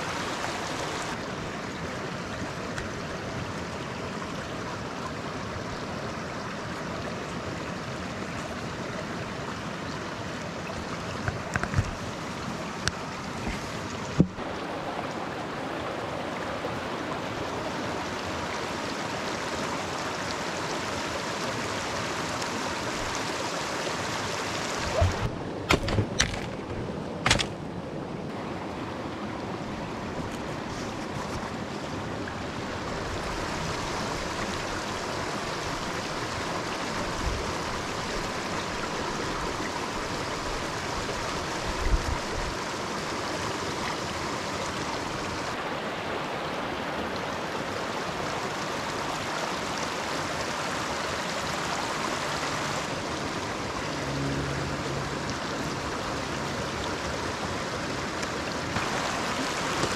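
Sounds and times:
stream rushing over rocks: 0.0 - 59.9.

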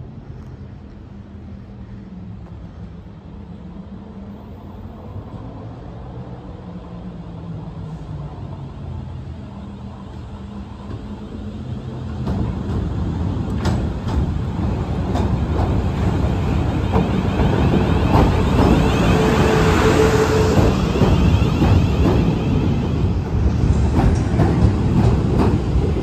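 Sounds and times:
electric train humming: 0.9 - 26.0
train wheels clicking over rail joints: 12.1 - 26.0.

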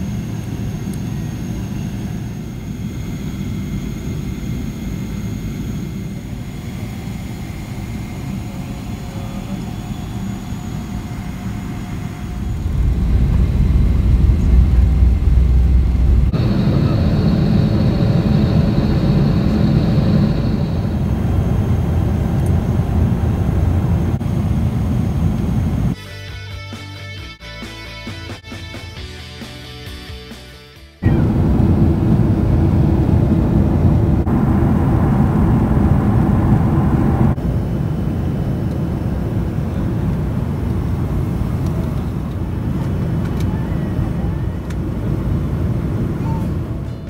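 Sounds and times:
airliner cabin engine rumble: 0.0 - 26.0, 31.0 - 47.0
thin high whine: 6.8 - 24.2.

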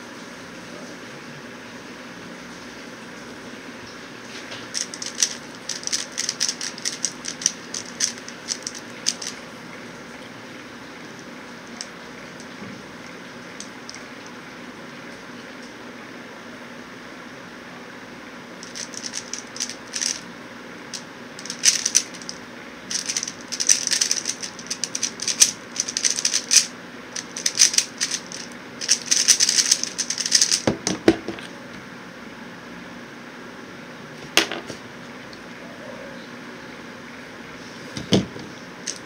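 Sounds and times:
puzzle cube clicking as turned: 4.7 - 9.4, 18.6 - 20.2, 21.4 - 30.6.

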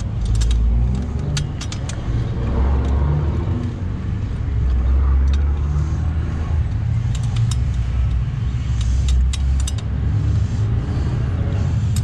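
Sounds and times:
metallic tool clicks: 0.0 - 10.2.

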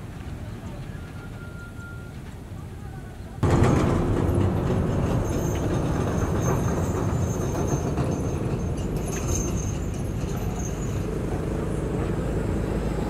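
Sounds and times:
diesel truck engine under load: 3.4 - 13.0.

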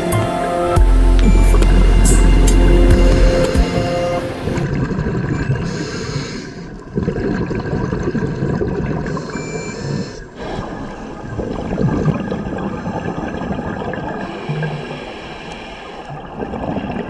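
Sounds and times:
diver breathing through regulator: 5.6 - 6.7, 14.2 - 16.1
air bubbling underwater: 10.4 - 15.2.

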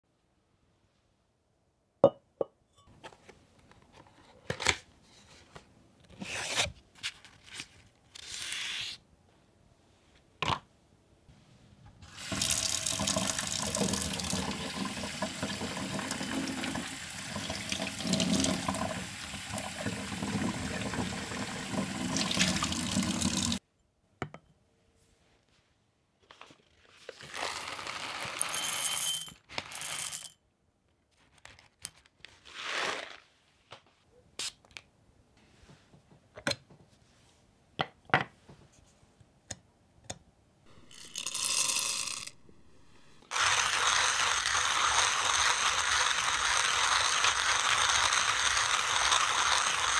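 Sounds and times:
glass set on wooden counter: 2.0 - 2.6
water pouring onto paper filter: 12.2 - 23.6
paper rustling: 31.1 - 34.0
coffee beans rattling into cup: 40.7 - 42.4, 43.3 - 49.9.

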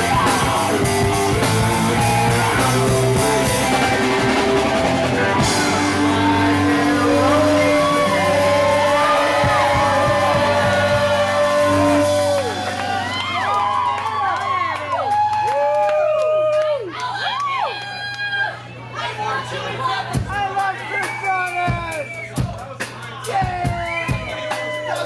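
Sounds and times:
live rock band playing: 0.0 - 14.0.

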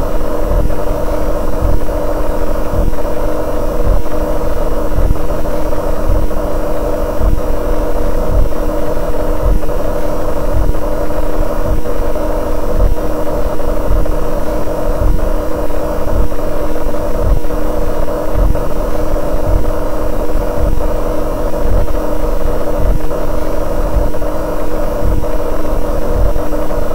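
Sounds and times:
fluorescent light hum drone: 0.0 - 26.9.

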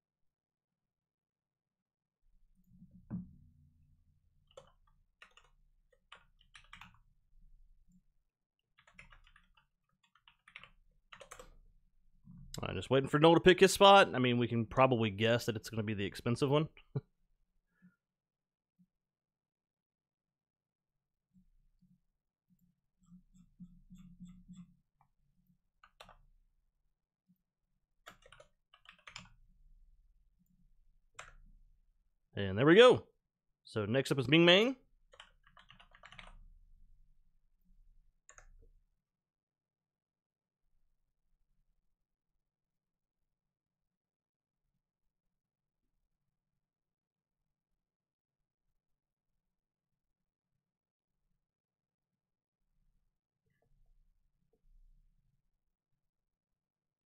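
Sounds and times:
keyboard typing and clicks: 4.4 - 7.0, 8.8 - 11.6, 23.0 - 24.8, 25.8 - 26.3, 28.0 - 29.4, 31.2 - 31.5, 35.1 - 36.5, 38.2 - 38.7
keyboard typing clicks: 8.8 - 11.6, 28.0 - 29.4, 35.1 - 36.4.

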